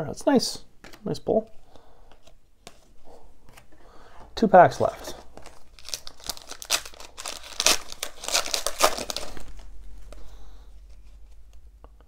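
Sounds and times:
foil wrapper crinkling and tearing: 0:05.3 - 0:09.8.

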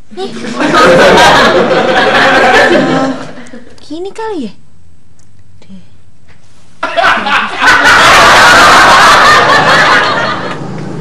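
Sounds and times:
audience laughter: 0:00.2 - 0:03.7, 0:06.8 - 0:10.9.

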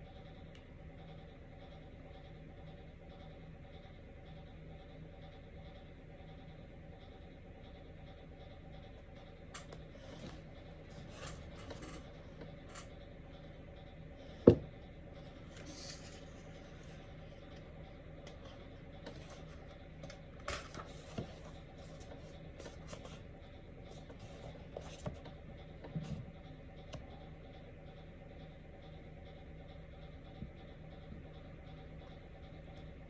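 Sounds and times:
book pages rustling and turning: 0:15.5 - 0:17.0, 0:18.4 - 0:23.2.

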